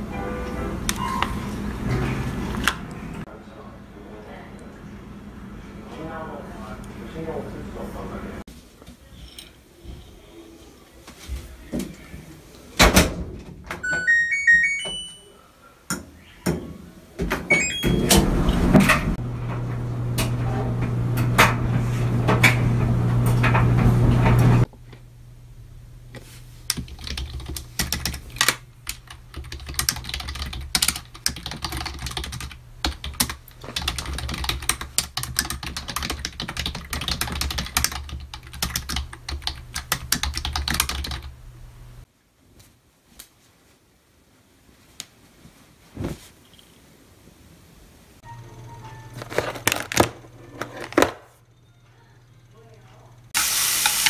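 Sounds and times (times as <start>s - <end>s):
stepped beep tones: 13.8s - 15.4s
washing machine running: 17.5s - 24.7s
fast typing on keyboard: 26.7s - 41.3s.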